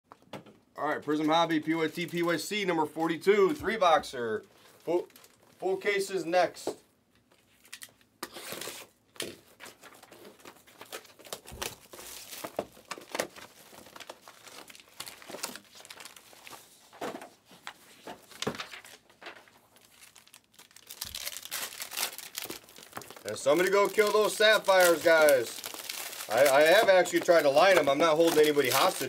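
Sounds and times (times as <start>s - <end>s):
plastic wrap crinkling and tearing: 1.9s - 2.6s, 4.5s - 5.6s, 7.5s - 17.0s, 17.7s - 29.0s.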